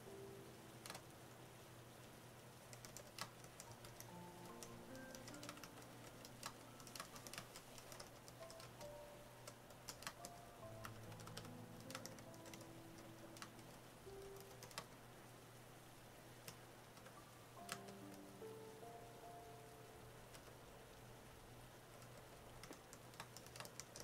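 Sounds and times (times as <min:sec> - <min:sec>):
soft piano music: 0:00.0 - 0:02.2, 0:03.0 - 0:22.7
keyboard key clicks: 0:22.0 - 0:24.0.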